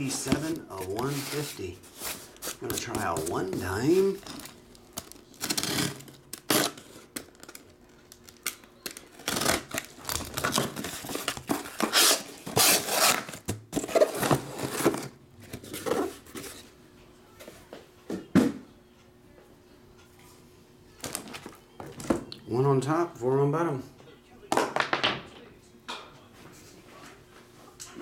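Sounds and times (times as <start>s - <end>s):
cardboard flaps scraping and rustling: 0.0s - 4.2s
box cutter slitting packing tape: 5.4s - 6.9s, 9.2s - 10.9s, 11.8s - 14.2s.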